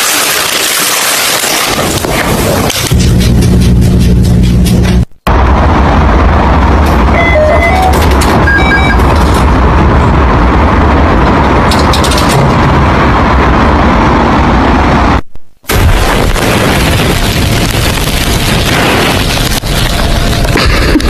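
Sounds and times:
short electronic beeps: 7.2 - 9.1.

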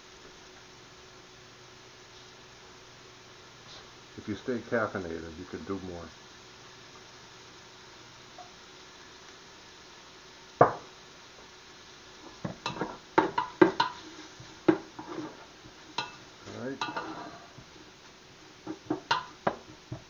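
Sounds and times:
wooden spoon knocking metal pot: 12.5 - 14.0, 18.7 - 19.7.

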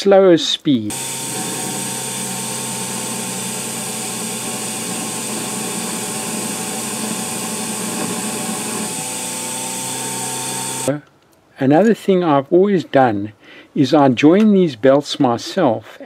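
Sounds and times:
electric motor and belt drive running: 0.9 - 10.9.

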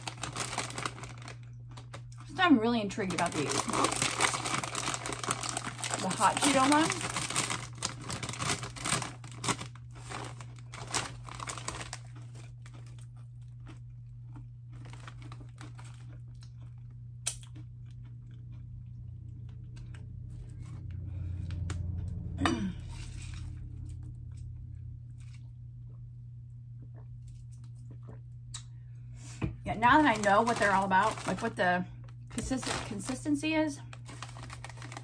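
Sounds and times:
snack bag rustling: 0.0 - 17.0, 29.8 - 31.6, 32.4 - 35.0
crunching and chewing: 0.0 - 22.3, 22.9 - 28.8, 33.8 - 35.0.

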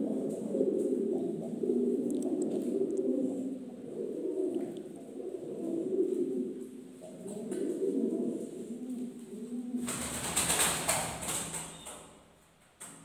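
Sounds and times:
pigeons cooing: 0.0 - 11.9.

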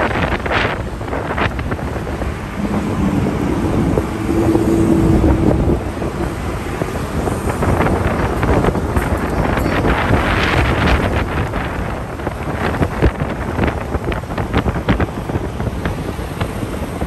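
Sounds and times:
motorbike engine and road rumble: 0.0 - 17.0
traffic: 0.0 - 17.0
wind buffeting microphone: 0.0 - 17.0
engine tone rising in pitch: 2.0 - 7.2.

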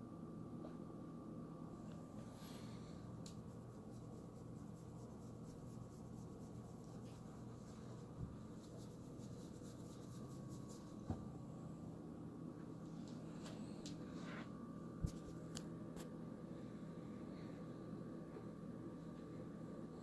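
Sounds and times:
steady low hum: 0.0 - 20.0
cat scratching and rustling: 3.3 - 11.1.

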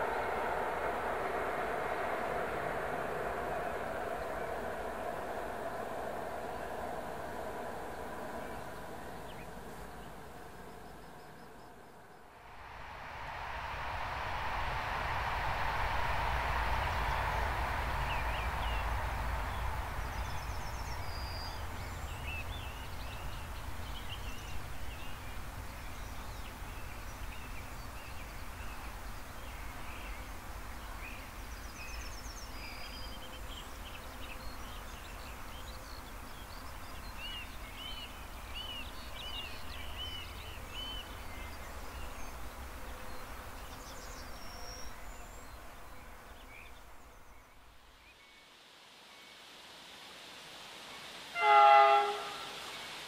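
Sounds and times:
electric train rolling past: 0.0 - 10.6, 12.5 - 27.8
low rumble: 0.0 - 26.3
birds chirping and trilling: 18.1 - 47.6.

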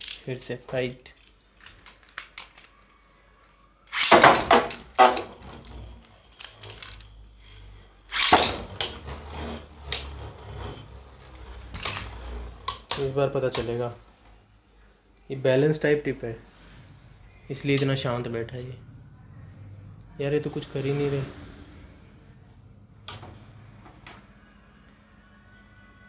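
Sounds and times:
tops spinning and rattling: 3.9 - 13.9.

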